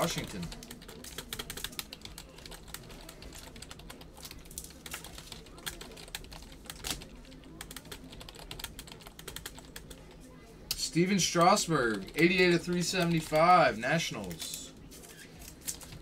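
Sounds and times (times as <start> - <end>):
computer keyboard typing: 0.0 - 10.1, 11.4 - 13.6.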